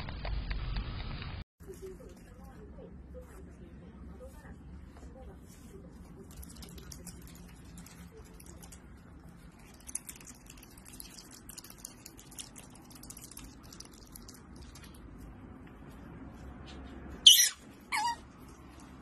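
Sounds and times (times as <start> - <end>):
otter chewing and smacking: 6.2 - 15.4
high-pitched squeaks: 17.2 - 18.5.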